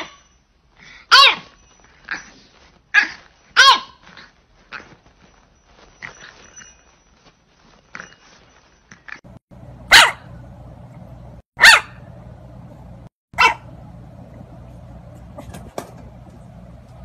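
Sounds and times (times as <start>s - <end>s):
puppy barking: 1.1s - 1.5s, 3.0s - 4.0s, 9.8s - 10.4s, 11.6s - 12.1s, 13.4s - 13.8s.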